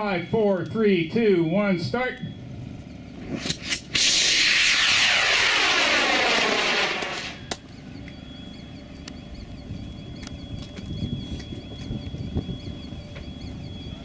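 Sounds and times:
rocket motor exhaust roaring: 2.5 - 8.9
sharp click: 3.3 - 4.3.

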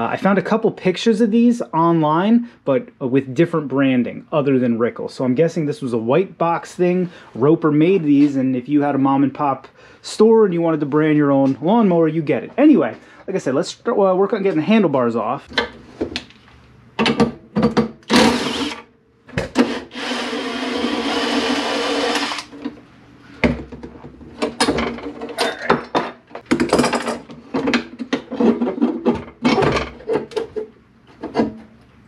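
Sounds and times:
cordless driver whirring: 18.1 - 18.8, 19.6 - 22.5.

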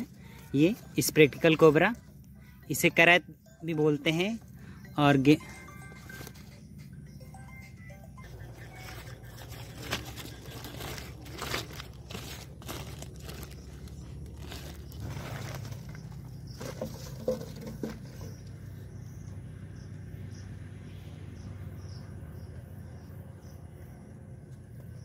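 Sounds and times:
faint high insect chirps: 0.0 - 25.0
low steady rumble: 0.0 - 25.0
plastic sack crinkling: 8.8 - 18.2.

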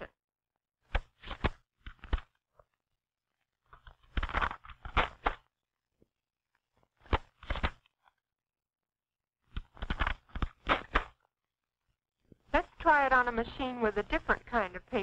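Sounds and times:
paper rustling: 3.7 - 5.4, 6.8 - 7.9, 9.5 - 11.2.

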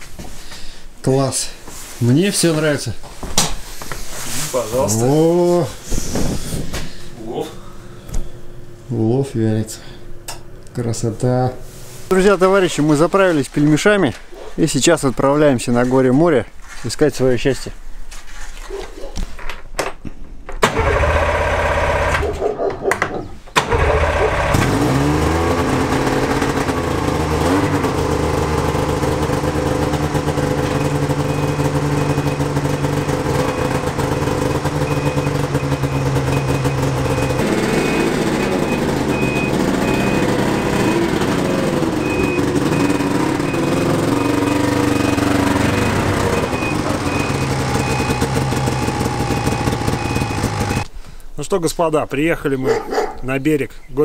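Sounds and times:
snowmobile engine starting and revving: 20.6 - 22.5, 23.6 - 50.9.

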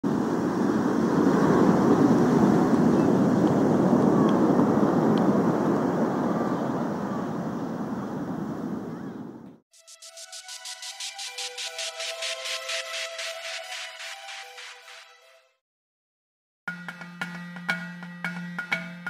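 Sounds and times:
wind noise: 0.0 - 9.6
waves breaking on beach: 0.1 - 8.9.

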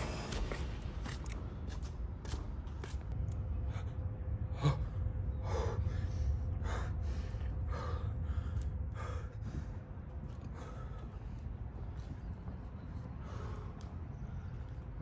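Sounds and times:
low rumble: 0.0 - 15.0
man gasping and breathing hard: 3.8 - 11.2.

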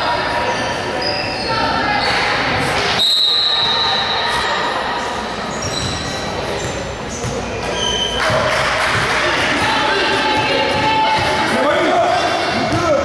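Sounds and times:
din of large gym: 0.0 - 13.0
sneakers squeaking on gym floor: 0.3 - 8.6.

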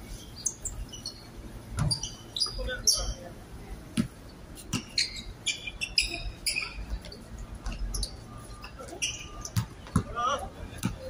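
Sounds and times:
shoes squeaking on court: 0.1 - 3.2, 4.0 - 11.0
basketball bouncing: 9.5 - 10.1.

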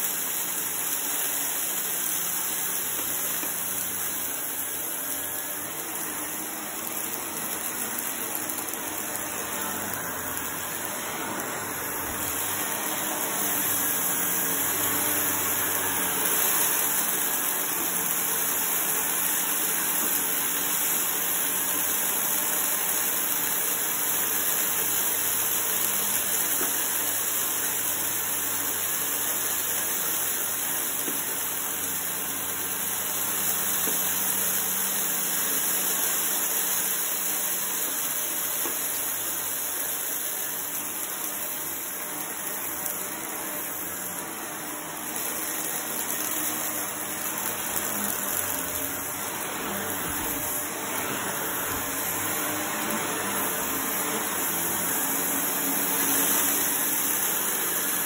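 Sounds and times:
vacuum cleaner running over carpet: 0.0 - 58.0.

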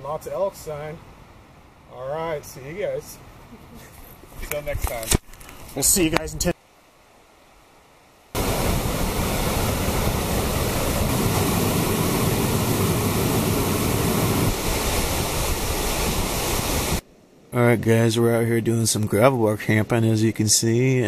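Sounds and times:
waterfall rushing: 8.4 - 17.0.

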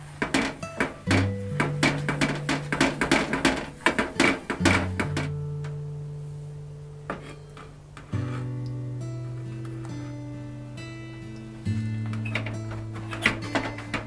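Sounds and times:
acoustic guitar music: 0.0 - 14.0
spatula knocking metal pot: 0.2 - 5.4.

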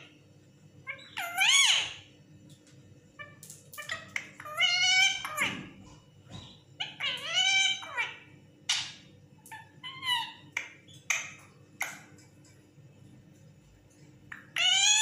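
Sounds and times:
parakeet squawking: 0.8 - 2.1, 3.2 - 5.8, 6.4 - 12.1, 14.3 - 15.0.

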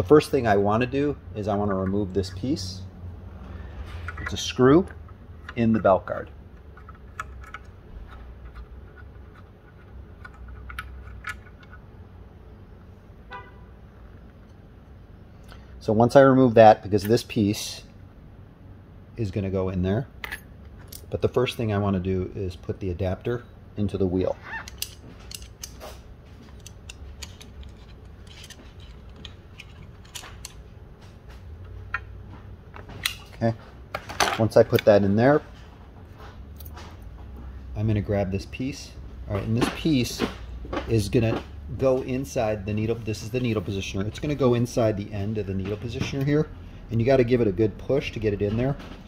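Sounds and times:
low steady hum: 0.0 - 49.0
metal clicks and scrapes: 3.8 - 11.9, 24.6 - 30.6
screwdriver metallic clicks and scrapes: 24.5 - 30.6.

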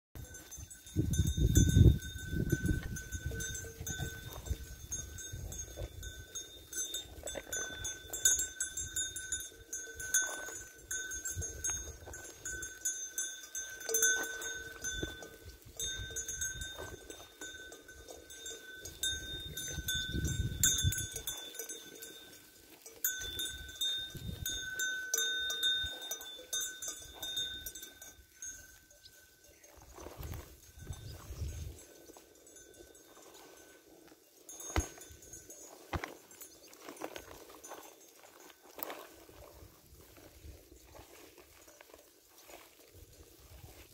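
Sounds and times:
sheep bells jingling: 0.2 - 43.9.

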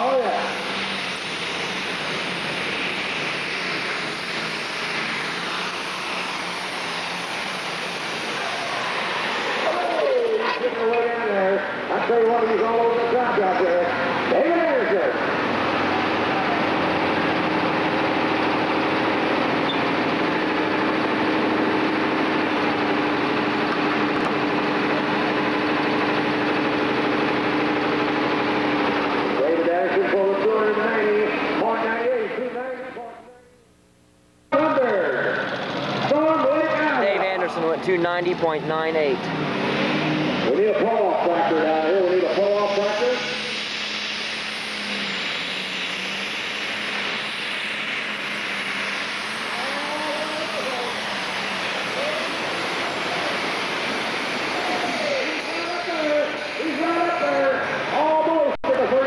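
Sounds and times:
tractor engine roaring: 0.0 - 33.5, 34.5 - 59.0
steady tone: 36.1 - 58.5.

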